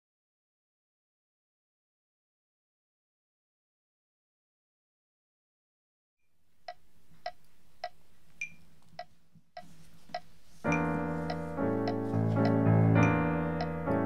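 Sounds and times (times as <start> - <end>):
metronome clicks: 10.2 - 13.9
piano accompaniment with bass: 10.6 - 14.0.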